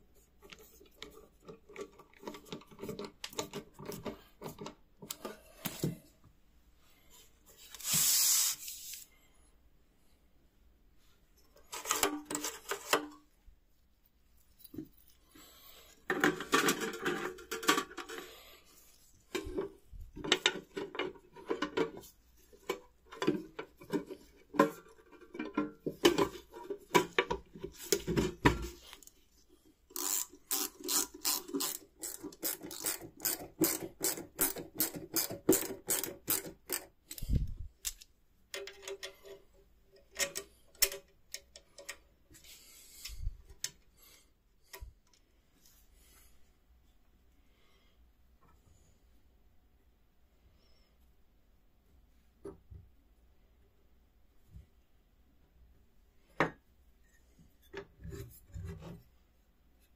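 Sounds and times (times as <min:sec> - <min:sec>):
metal parts clicking and scraping: 0:29.9 - 0:39.4.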